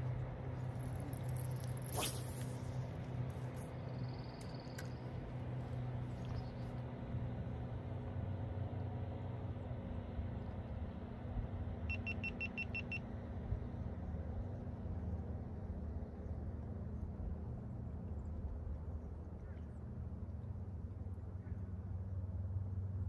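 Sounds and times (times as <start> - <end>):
boat motor humming: 0.0 - 23.0
short electronic beeps: 11.9 - 13.0.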